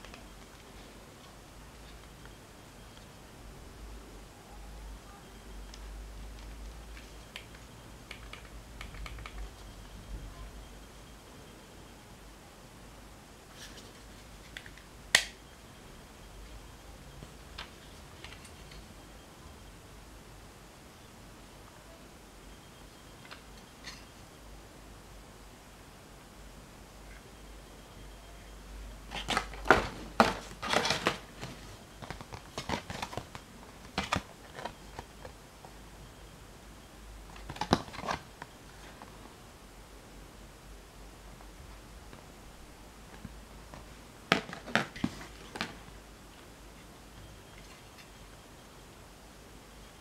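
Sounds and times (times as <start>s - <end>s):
plastic and cardboard handling rustles: 29.1s - 35.4s, 43.1s - 45.9s.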